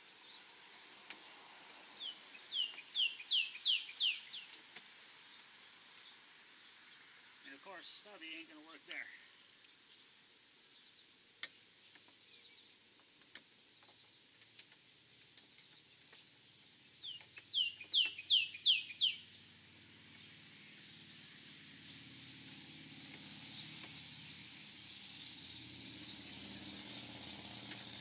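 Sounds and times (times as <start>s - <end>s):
low rumble and hiss: 0.0s - 28.0s
faint scattered clicks: 1.0s - 1.8s, 2.6s - 3.0s, 4.4s - 6.1s, 13.0s - 16.4s
songbird whistling: 2.0s - 4.5s, 17.0s - 19.3s.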